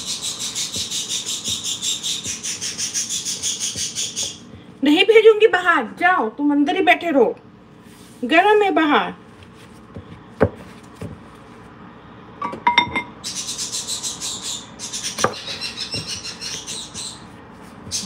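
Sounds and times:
hands kneading dough: 0.0 - 4.7, 9.2 - 11.7
dough knocking on counter: 9.9 - 11.2.

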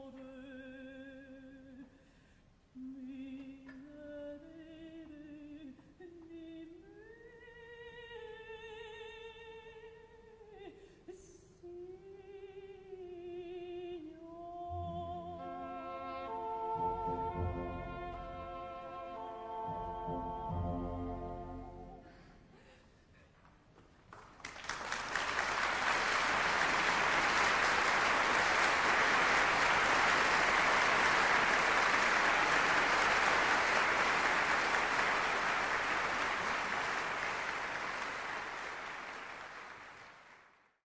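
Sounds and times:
orchestra playing: 15.3 - 22.1
audience applauding: 24.0 - 40.8.

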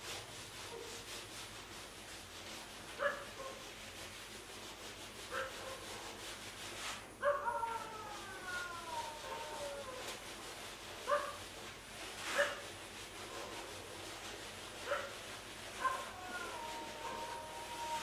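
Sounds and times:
dog yelps: 7.2 - 8.0, 15.8 - 18.0.

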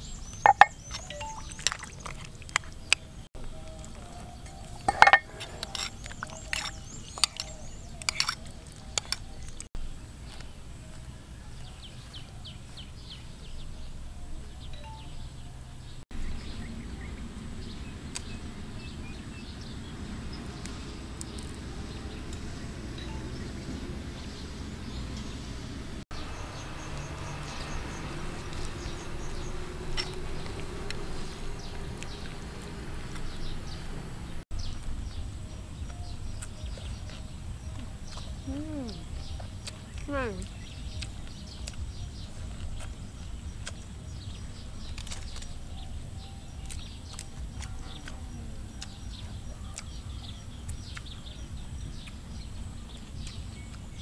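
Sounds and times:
faint bird chirps: 0.0 - 2.1, 13.5 - 17.2, 35.8 - 43.7
metal spoon scraping a bowl: 4.9 - 9.2.

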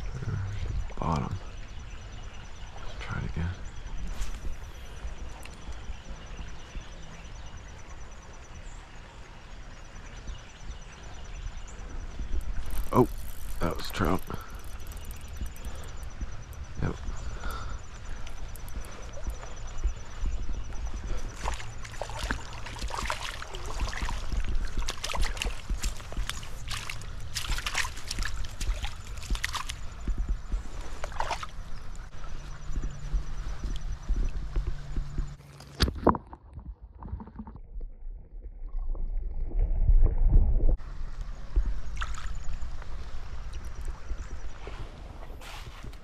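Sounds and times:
creek water trickling and splashing: 0.0 - 46.0
low rumble: 11.4 - 35.4, 36.6 - 44.5
running water hiss: 12.5 - 20.2
rapid high ticking: 12.5 - 22.8.

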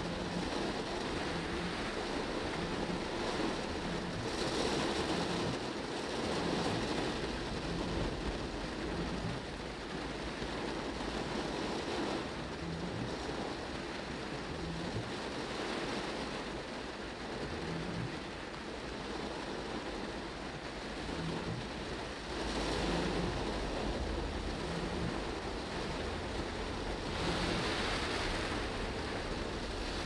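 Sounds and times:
heavy rain on a car: 0.0 - 30.0
traffic hissing through water: 0.0 - 30.0.

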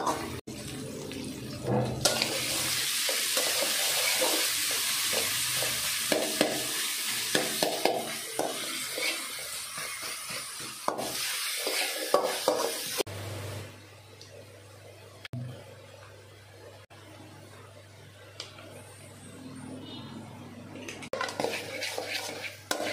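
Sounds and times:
onions sizzling in hot oil: 0.0 - 13.6, 21.2 - 22.9
metal spatula scraping pan: 1.8 - 6.6, 7.6 - 13.0, 21.1 - 22.9.

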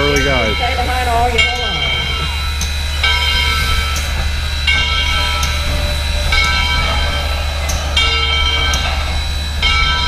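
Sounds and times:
ringing bell-like tones: 0.0 - 10.0.

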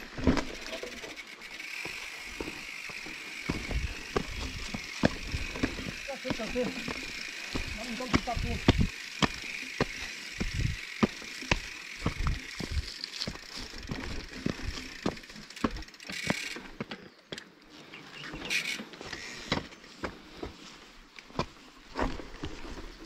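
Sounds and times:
bike knocking and rattling: 0.0 - 17.5
bike tyres on dirt trail: 0.0 - 23.0.

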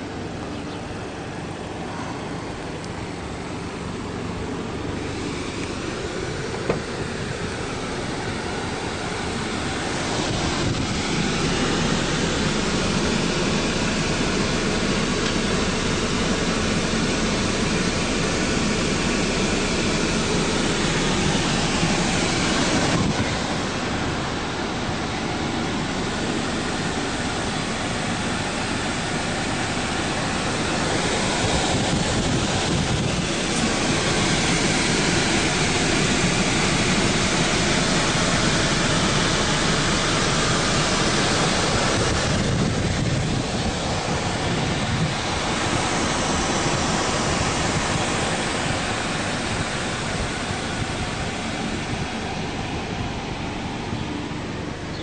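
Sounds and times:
wind on microphone: 9.7 - 12.0, 21.5 - 24.8, 29.8 - 35.8, 41.0 - 54.5.

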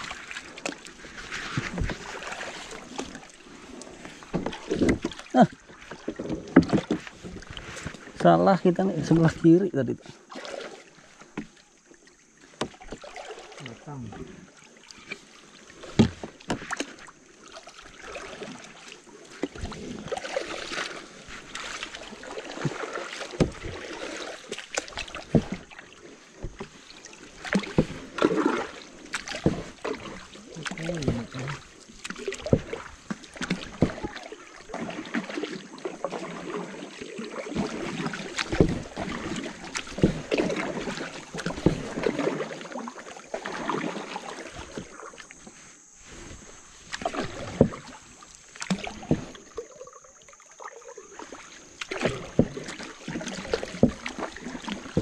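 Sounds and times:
paddles splashing in water: 0.0 - 55.0
water splashing: 0.0 - 55.0
wood knocking against hull: 4.0 - 8.2, 15.8 - 16.9, 22.2 - 24.0, 24.7 - 25.8, 26.4 - 35.1, 37.4 - 42.4, 46.9 - 48.0, 48.6 - 49.7, 51.8 - 55.0.

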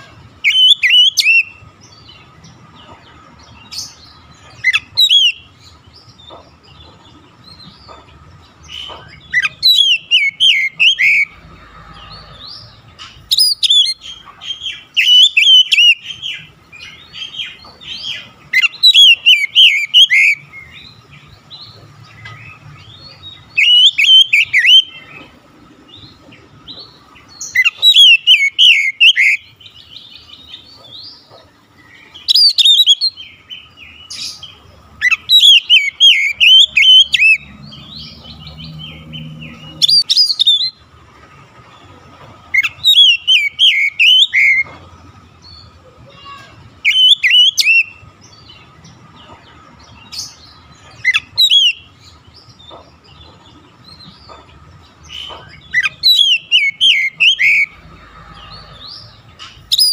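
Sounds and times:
bird singing whistled phrases: 0.4 - 1.6, 42.6 - 44.6, 46.8 - 48.0, 55.8 - 57.8.

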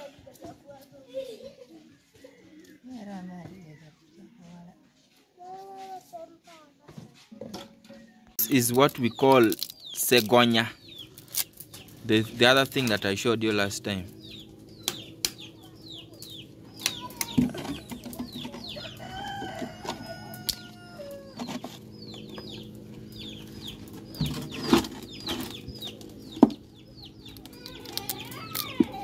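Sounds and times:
chickens clucking and calling: 1.1 - 5.1, 14.2 - 29.0.

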